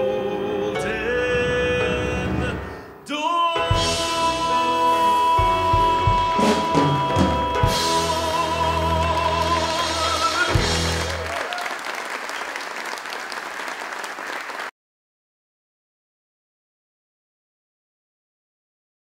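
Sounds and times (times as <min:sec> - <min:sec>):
man singing with vibrato: 0:00.0 - 0:11.2
audience applause: 0:08.9 - 0:14.7.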